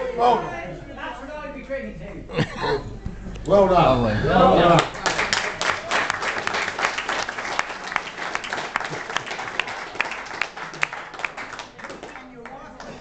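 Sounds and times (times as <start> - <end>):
audience applauding: 4.6 - 13.0.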